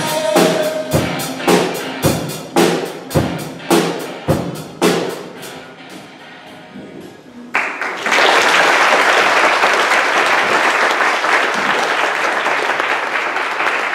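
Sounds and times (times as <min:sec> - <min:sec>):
drum kit ringing: 0:00.0 - 0:06.8
audience applause: 0:07.5 - 0:13.9.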